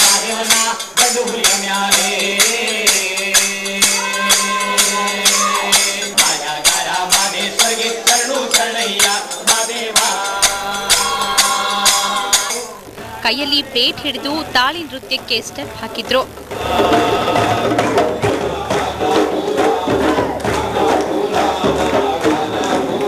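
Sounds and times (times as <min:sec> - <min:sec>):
steady low drone: 0:10.4 - 0:18.7.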